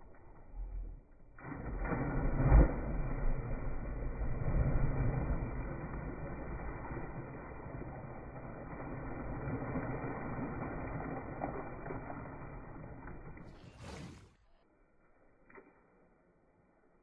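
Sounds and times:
river water churning and lapping: 0:01.4 - 0:14.5.

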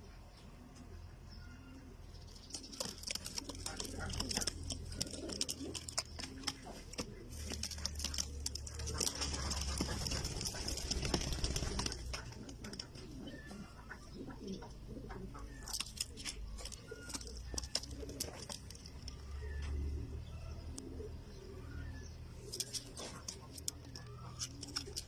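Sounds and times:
pigeons cooing: 0:00.0 - 0:25.0
sharp clicks and scuffles: 0:02.4 - 0:12.9, 0:15.6 - 0:19.8, 0:22.4 - 0:25.0.

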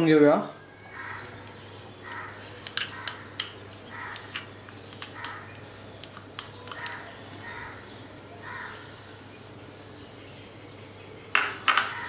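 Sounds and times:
crows cawing: 0:00.9 - 0:01.4, 0:02.0 - 0:04.4, 0:05.2 - 0:05.5, 0:06.8 - 0:09.0.

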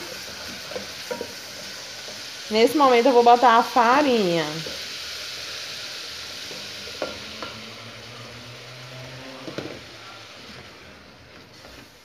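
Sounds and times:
onion sizzling in butter: 0:00.0 - 0:12.0.

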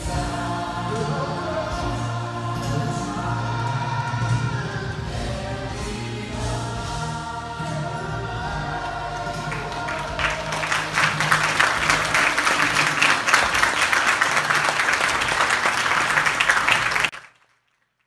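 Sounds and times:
congregation applauding: 0:08.6 - 0:18.0.

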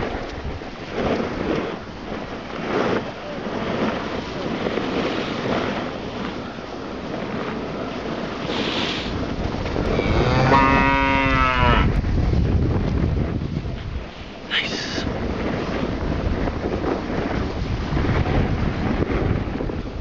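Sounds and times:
wind on microphone: 0:00.0 - 0:20.0
cow mooing: 0:09.8 - 0:12.0.

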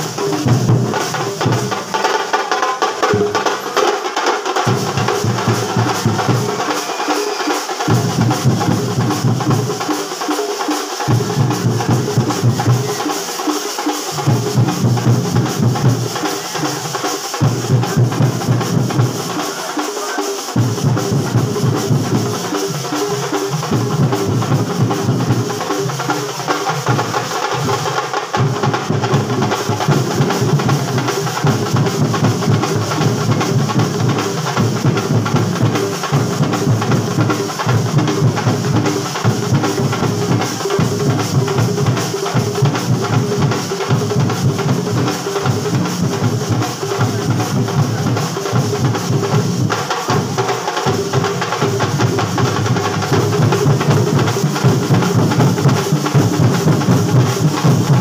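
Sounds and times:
bass drum and snare beats: 0:00.0 - 0:58.0
band playing: 0:05.0 - 0:08.8.

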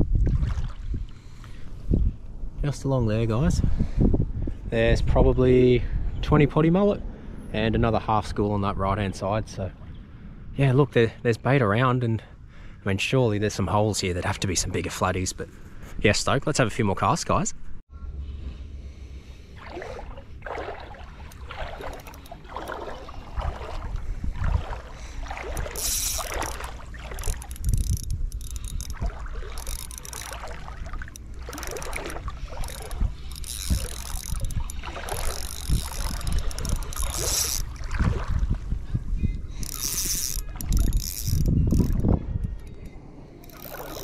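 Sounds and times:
wind rumble on microphone: 0:00.0 - 0:11.7, 0:17.5 - 0:44.0
fishing reel gears whirring: 0:21.0 - 0:23.2, 0:24.7 - 0:37.8, 0:39.6 - 0:44.0.

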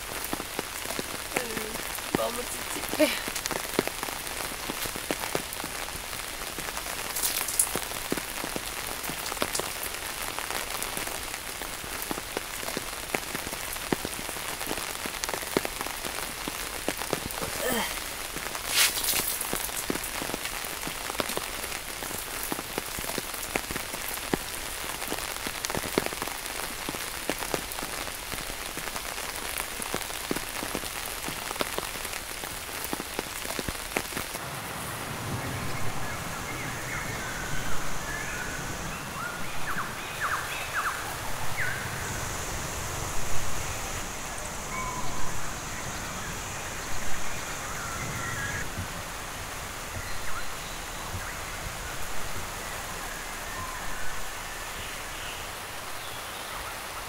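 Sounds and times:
rain on tent fabric: 0:00.0 - 0:57.0
louder raindrop taps: 0:00.2 - 0:34.4.

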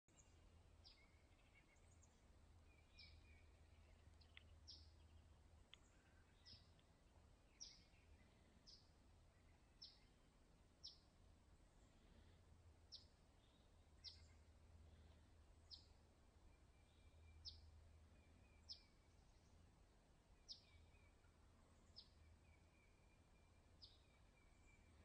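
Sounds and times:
low steady rumble: 0:00.1 - 0:25.0
faint bird calls: 0:00.2 - 0:11.0.

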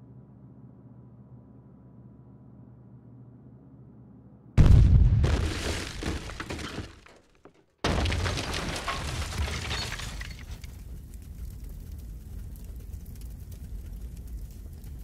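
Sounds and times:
loud crash with heavy boom: 0:04.6 - 0:06.7
rough crackling noise: 0:08.0 - 0:15.0.

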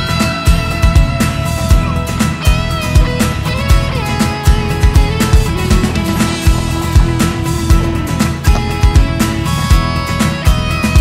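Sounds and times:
rock music with guitar and drums: 0:00.0 - 0:11.0.

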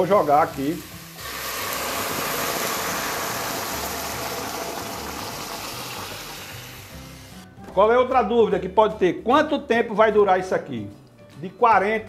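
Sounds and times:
water pouring onto vegetables: 0:00.0 - 0:07.2.

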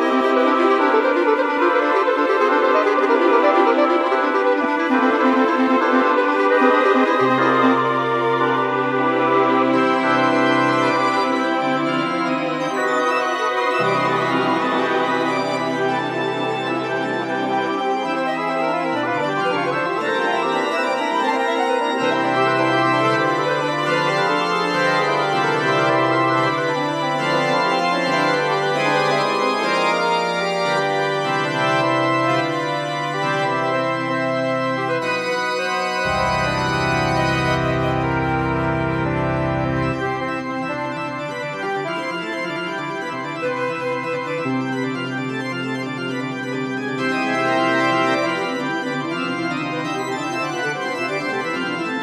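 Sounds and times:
instrumental music with held chords: 0:00.0 - 0:52.0.

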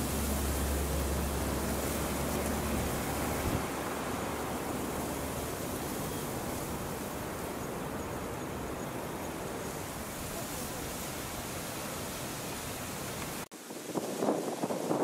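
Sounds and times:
strong wind on microphone: 0:12.8 - 0:15.0.

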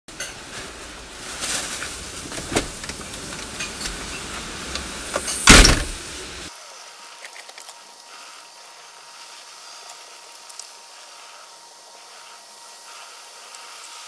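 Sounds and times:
heavy rain hissing: 0:00.1 - 0:06.5
loud thump: 0:05.4 - 0:06.1.

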